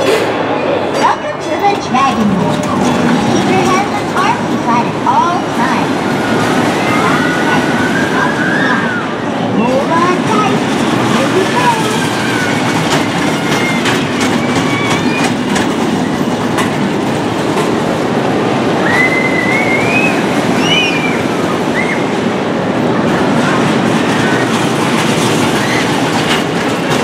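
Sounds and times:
roller coaster rumbling on track: 0.0s - 27.0s
high squeals: 11.7s - 16.4s.

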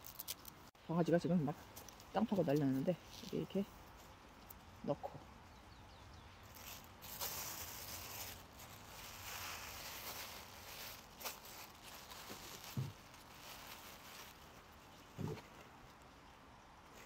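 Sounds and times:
plastic bag crinkling: 0.0s - 0.7s, 6.4s - 15.0s.

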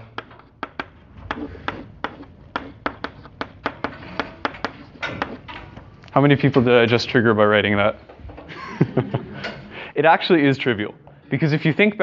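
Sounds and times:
chalk tapping on blackboard: 0.0s - 5.4s.

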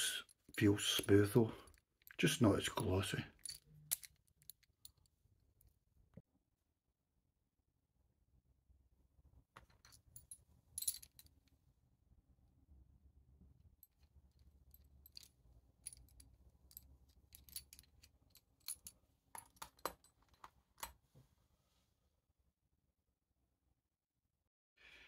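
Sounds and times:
small metallic clicks and clinks: 0.2s - 5.1s, 13.8s - 21.0s.

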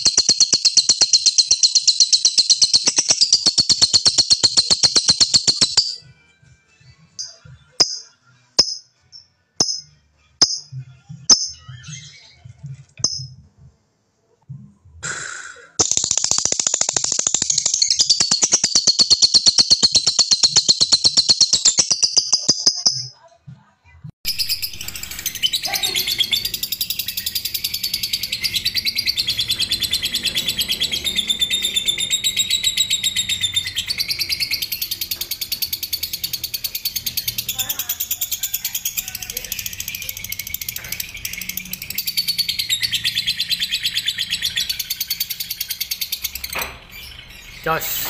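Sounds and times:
lovebirds chirping: 24.3s - 48.0s.

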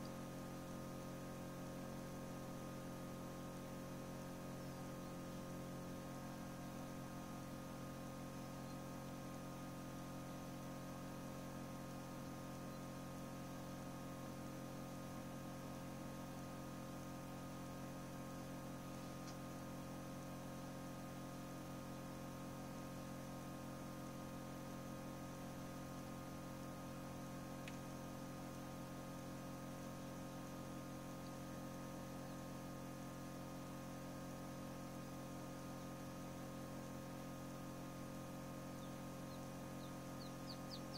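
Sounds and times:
incubator electrical hum: 0.0s - 40.9s
faint tick: 27.6s - 27.8s.

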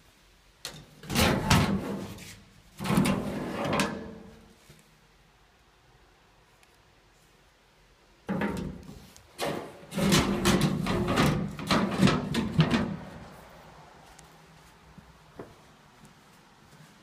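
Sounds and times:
sheet-metal panel rattling and scraping: 1.0s - 2.2s, 2.8s - 4.3s, 9.4s - 13.1s.

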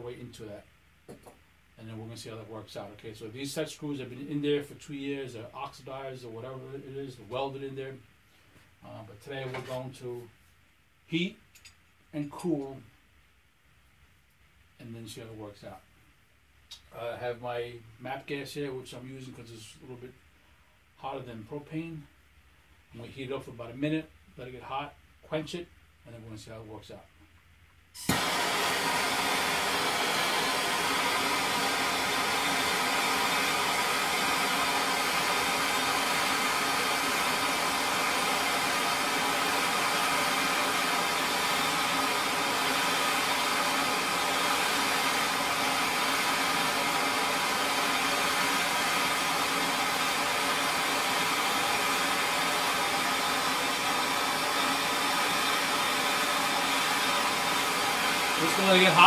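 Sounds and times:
gas torch hissing: 28.0s - 59.0s.

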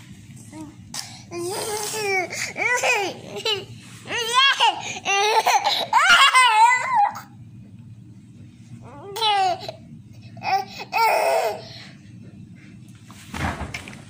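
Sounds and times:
toddler laughing: 1.3s - 7.3s.

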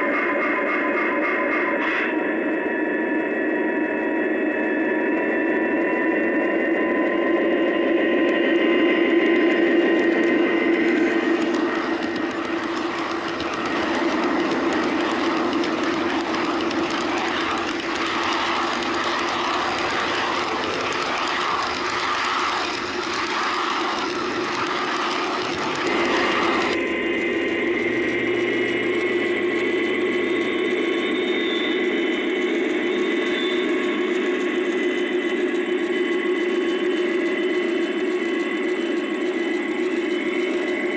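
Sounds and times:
model train wheels clattering: 10.1s - 26.8s.

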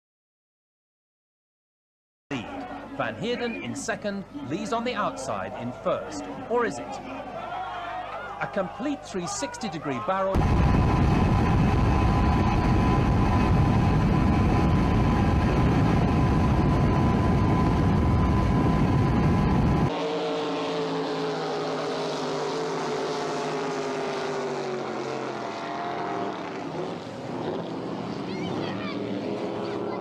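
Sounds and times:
motorboat engine at speed: 10.5s - 30.0s
racing boat passing by: 19.9s - 30.0s.

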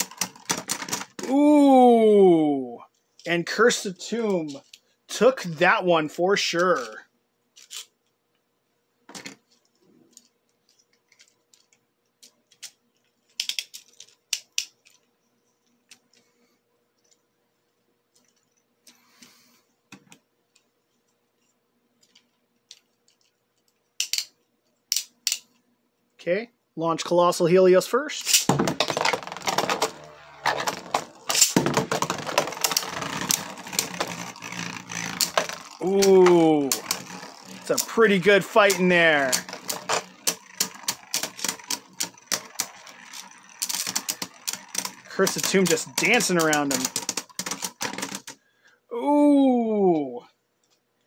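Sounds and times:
spinning tops clicking and knocking: 0.0s - 1.2s, 28.2s - 48.4s
faint steady hum: 0.0s - 51.0s.

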